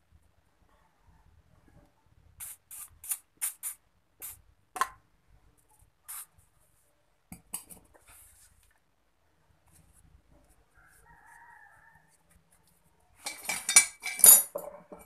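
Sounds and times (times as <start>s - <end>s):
aerosol can spraying: 2.4s - 4.4s.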